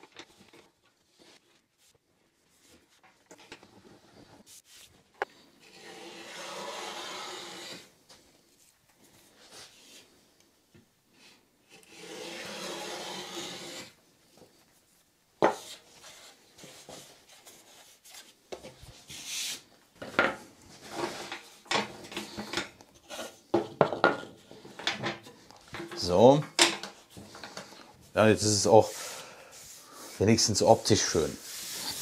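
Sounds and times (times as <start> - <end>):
block plane shaving wood: 5.6 - 7.9, 11.7 - 13.9
short scrape: 5.6 - 7.9
wooden boards knocking and clunking: 23.5 - 26.0.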